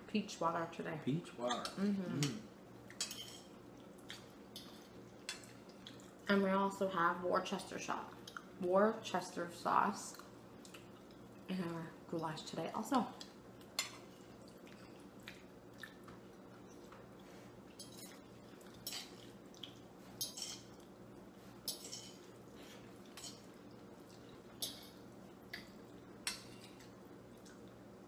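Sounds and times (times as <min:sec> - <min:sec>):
faint steady hum: 0:00.0 - 0:28.0
forks scraping on plates: 0:03.0 - 0:03.5, 0:20.2 - 0:20.7, 0:21.6 - 0:22.3
eating sounds: 0:13.6 - 0:21.0, 0:21.7 - 0:27.8.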